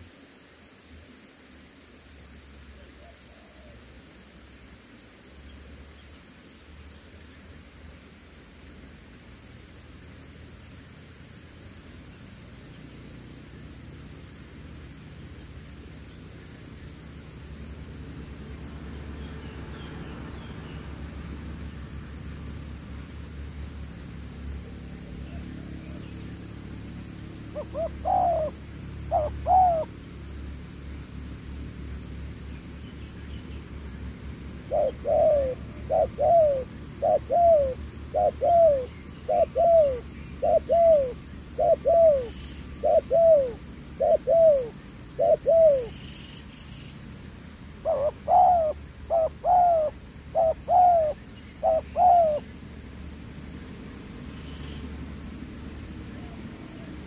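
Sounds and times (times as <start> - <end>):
dove cooing: 27.4 - 30.0, 34.6 - 46.2, 47.8 - 52.5.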